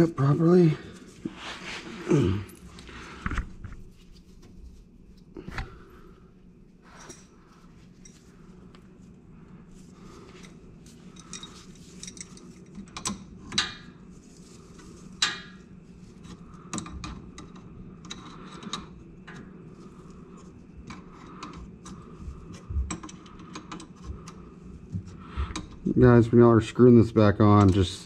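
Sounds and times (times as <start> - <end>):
steady low hum: 0.0 - 28.0
metallic clicks and scrapes: 10.4 - 13.8.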